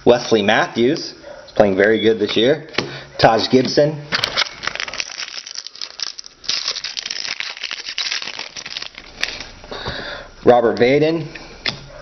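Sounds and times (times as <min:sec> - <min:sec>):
foil wrapper tearing and crinkling: 0:04.1 - 0:09.6.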